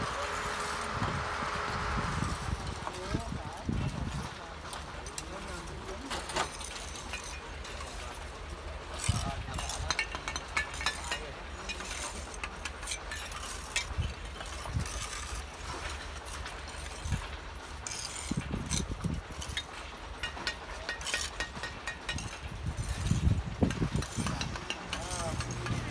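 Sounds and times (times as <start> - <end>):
trowels scraping mortar: 5.1 - 25.9
bricks knocking and clinking: 6.1 - 25.9.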